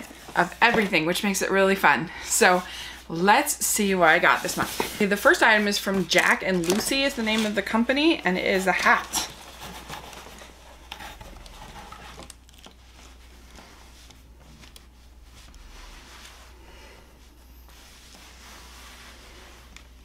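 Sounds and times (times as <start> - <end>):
faint clicks and rustles of hat: 8.7 - 20.0
steady low hum: 10.1 - 20.0.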